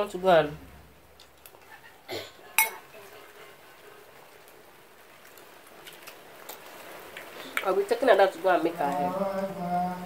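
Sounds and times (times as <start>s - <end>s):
spoon clinking on plate: 2.6s - 2.8s.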